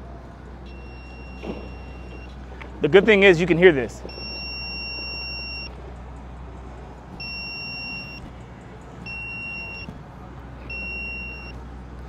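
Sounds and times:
high beeps: 0.7s - 2.3s, 4.1s - 5.8s, 7.2s - 8.3s, 9.0s - 9.9s, 10.6s - 11.6s.

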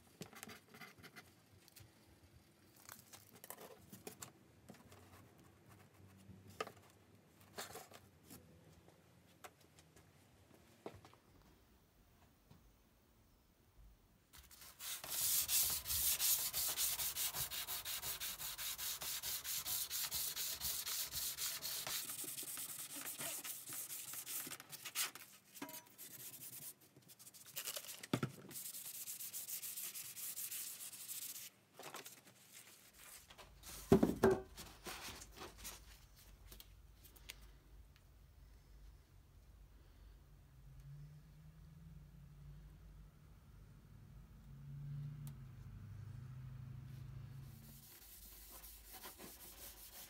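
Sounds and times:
sandpaper sanding steel: 14.5s - 24.4s, 28.6s - 31.4s, 47.7s - 50.0s.

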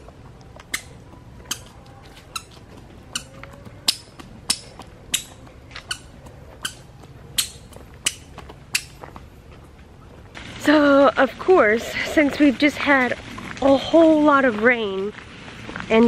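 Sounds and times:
squeaky shoes squeaking: 0.0s - 9.3s.

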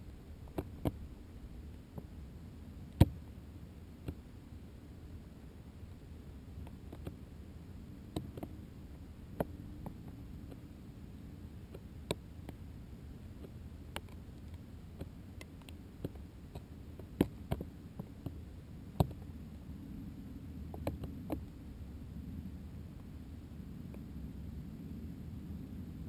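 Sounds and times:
muffled low rumble: 0.0s - 26.0s.

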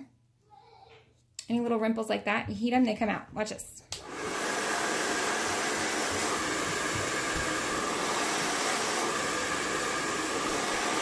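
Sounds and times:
hair dryer blowing: 4.0s - 11.0s.

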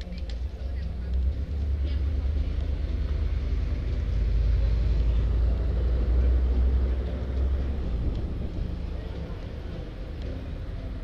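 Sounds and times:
faint traffic: 0.0s - 11.0s
wind buffeting microphone: 7.0s - 9.8s.

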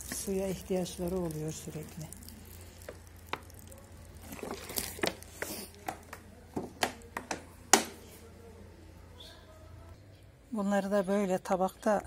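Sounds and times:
low steady hum: 0.0s - 5.3s.

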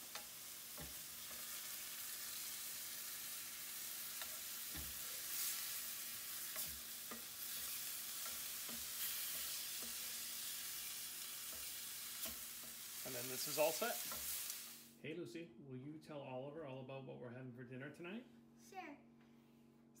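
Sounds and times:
cauliflower sizzling in a skillet: 0.0s - 15.0s
wooden spoon knocking on pan: 4.6s - 5.0s.

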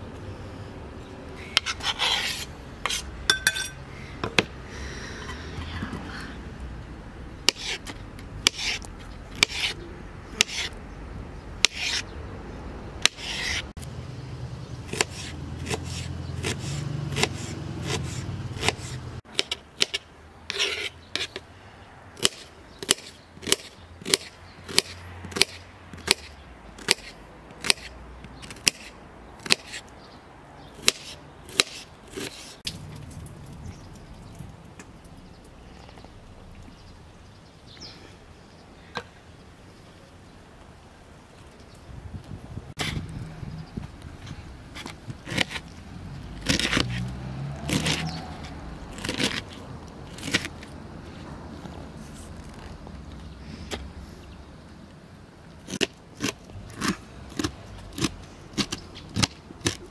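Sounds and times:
knife scraping on plastic board: 1.6s - 3.7s, 7.5s - 9.8s, 10.4s - 10.8s, 11.6s - 12.0s, 13.0s - 13.7s, 14.9s - 21.4s
knife chopping onion: 14.9s - 21.3s.

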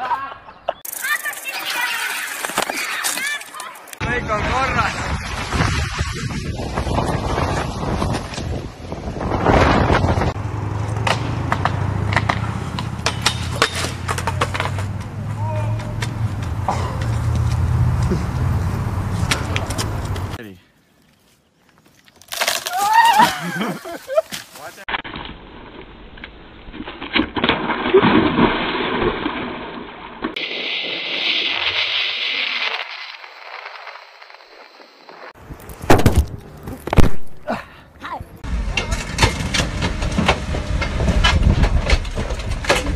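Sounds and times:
skateboard clicking on pavement: 0.8s - 4.0s, 13.6s - 17.7s
wind gusting on microphone: 4.0s - 10.8s
person splashing into pool: 27.4s - 30.4s.

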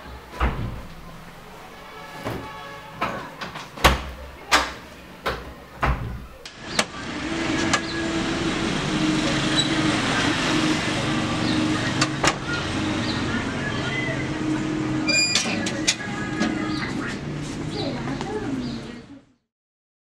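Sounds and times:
street noise: 0.0s - 19.5s
vehicle engine running: 6.9s - 19.0s.

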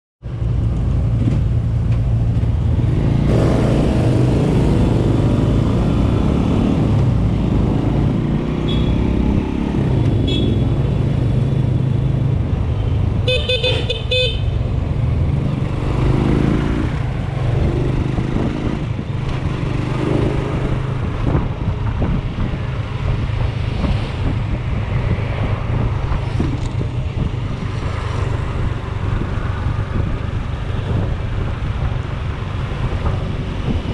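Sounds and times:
vehicle horn short toots: 8.7s - 9.0s, 10.2s - 10.6s, 13.3s - 14.4s.

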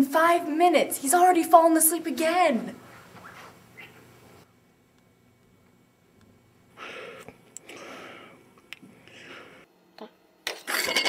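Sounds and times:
person breathing heavily asleep: 6.7s - 9.7s.

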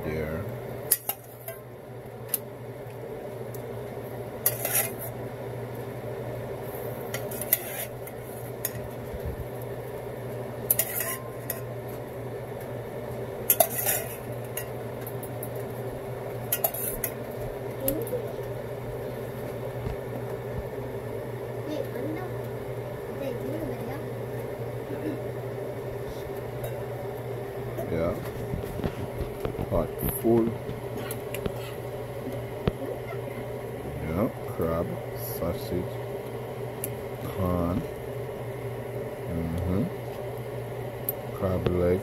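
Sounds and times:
steady background hum: 0.0s - 42.0s
metal spoon scraping stockpot: 4.4s - 5.1s, 7.2s - 8.0s, 10.7s - 11.6s, 13.5s - 14.3s, 16.5s - 17.1s.

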